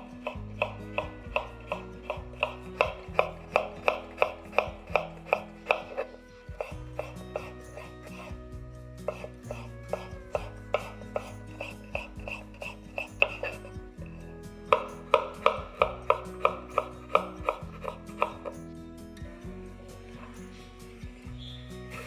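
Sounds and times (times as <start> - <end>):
soft background music: 0.0 - 22.0
knife chopping on wooden board: 0.2 - 8.3, 9.1 - 13.6, 14.7 - 18.6.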